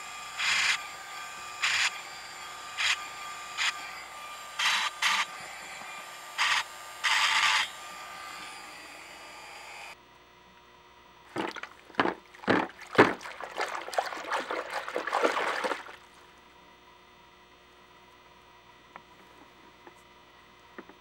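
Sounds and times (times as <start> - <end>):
water splashing and sloshing: 11.3 - 16.3
brush scrubbing in soapy water: 11.4 - 16.1.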